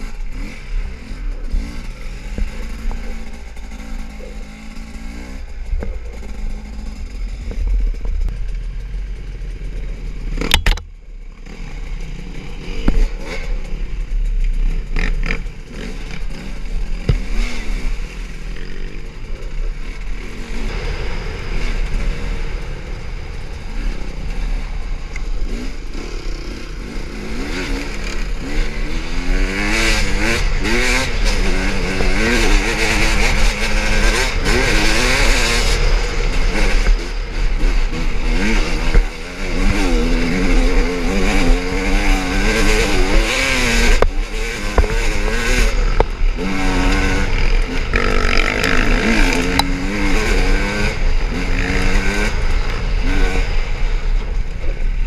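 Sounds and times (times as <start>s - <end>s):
bike rattling: 0.0s - 55.0s
dirt bike engine revving: 0.0s - 55.0s
rush of air: 15.6s - 55.0s.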